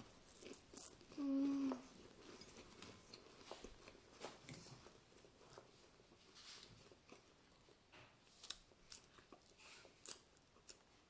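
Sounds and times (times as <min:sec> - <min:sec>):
crackers crunching: 0:00.0 - 0:01.2, 0:06.5 - 0:10.9.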